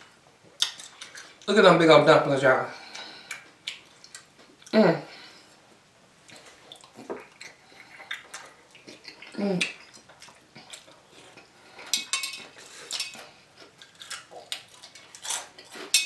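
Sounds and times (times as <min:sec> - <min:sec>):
chewing: 0:00.6 - 0:01.5, 0:02.9 - 0:04.8, 0:06.2 - 0:16.0
person humming mm: 0:09.2 - 0:09.8
metal fork clinking on dishes: 0:11.9 - 0:13.2.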